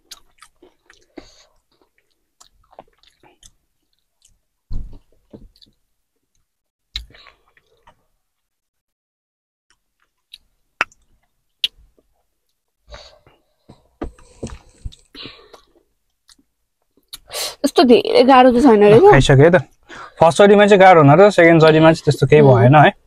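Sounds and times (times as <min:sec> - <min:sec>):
crunchy chips chewing: 0:00.0 - 0:04.4
breathy sounds: 0:12.9 - 0:15.9.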